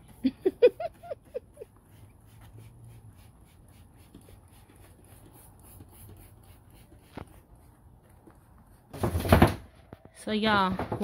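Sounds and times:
brush scrubbing metal floor: 0:00.0 - 0:07.8.

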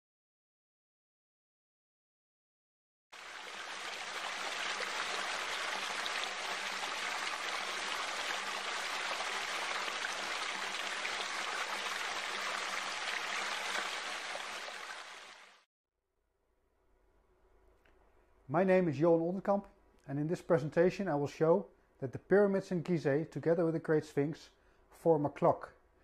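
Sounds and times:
running water rushing: 0:03.2 - 0:15.7.

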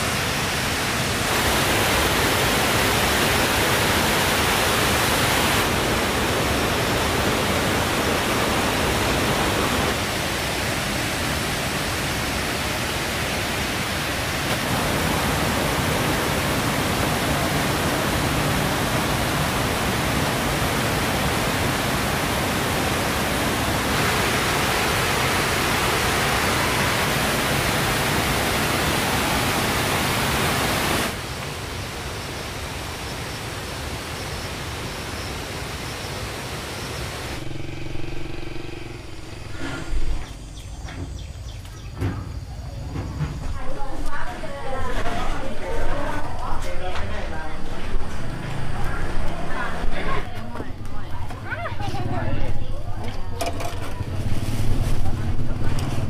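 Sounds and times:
steady rushing noise: 0:00.0 - 0:40.6.

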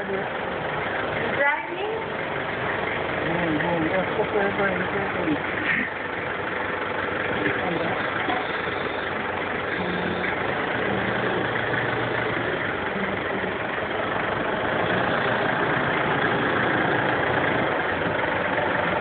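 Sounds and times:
truck engine idling: 0:00.0 - 0:19.0.

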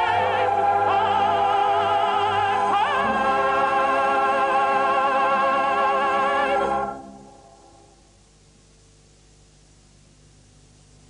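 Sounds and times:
music with vibrato note: 0:00.0 - 0:08.1.

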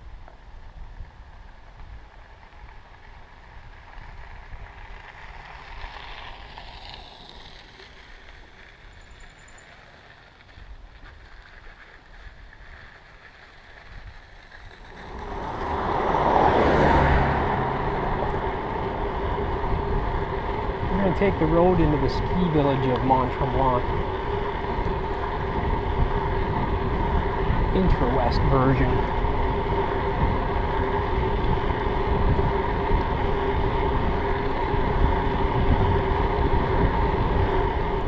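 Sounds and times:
bike tyres on pavement: 0:00.0 - 0:38.0
faint outdoor background noise: 0:00.0 - 0:38.0
wind rushing: 0:14.9 - 0:22.4.

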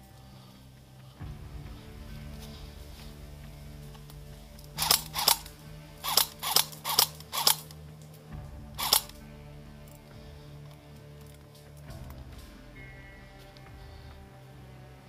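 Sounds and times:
airsoft rifle shots: 0:04.8 - 0:07.7, 0:08.8 - 0:09.1.

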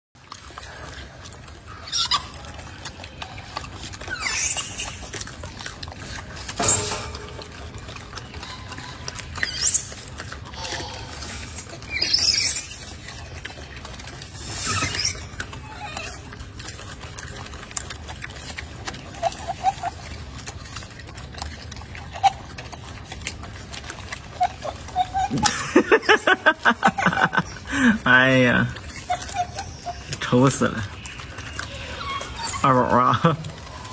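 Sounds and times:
monkeys high-pitched rising calls: 0:01.7 - 0:02.7, 0:04.0 - 0:05.3, 0:09.1 - 0:13.3, 0:14.4 - 0:16.4, 0:24.3 - 0:27.3, 0:28.8 - 0:30.2, 0:31.0 - 0:33.9
faint monkey chirps: 0:04.1 - 0:05.2, 0:09.4 - 0:11.0, 0:11.8 - 0:13.0.

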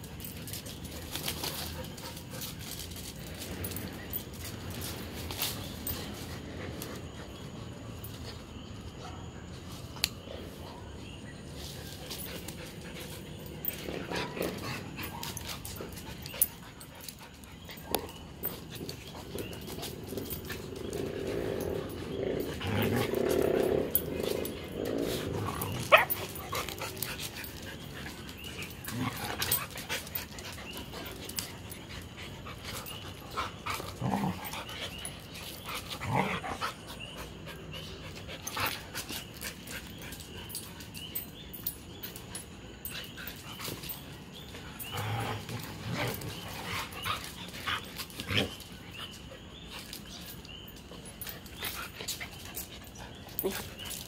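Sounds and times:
dogs growling: 0:12.1 - 0:41.2, 0:42.4 - 0:50.3.

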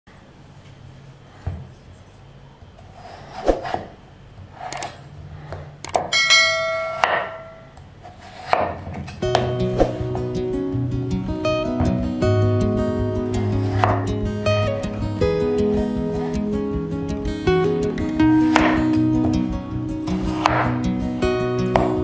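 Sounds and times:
knife cutting potatoes on board: 0:02.9 - 0:03.9, 0:08.0 - 0:10.3, 0:13.4 - 0:14.2, 0:18.3 - 0:20.8, 0:21.7 - 0:22.0
plucked guitar music: 0:09.2 - 0:22.0.

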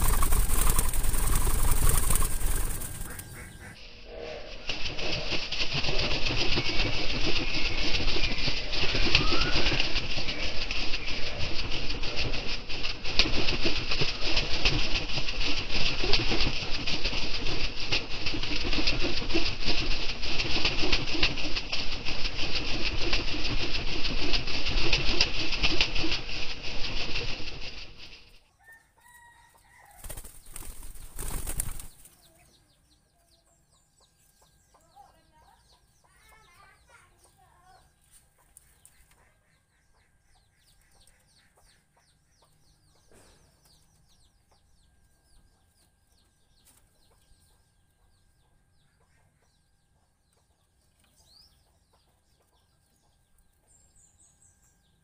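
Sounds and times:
doves flapping wings: 0:00.0 - 0:03.8, 0:04.5 - 0:28.4, 0:29.8 - 0:32.4.

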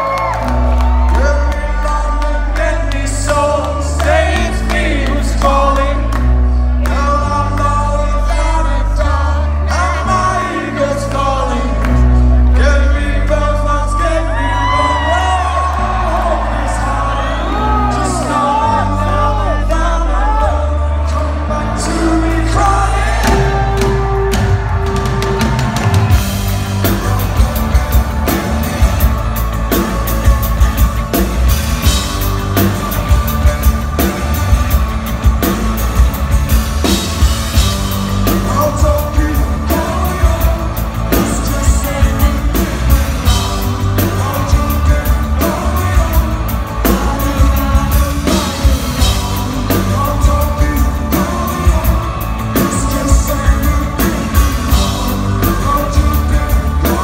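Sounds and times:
bass guitar notes: 0:00.0 - 0:57.0
person singing: 0:00.0 - 0:57.0
drums steady beat: 0:21.9 - 0:57.0.

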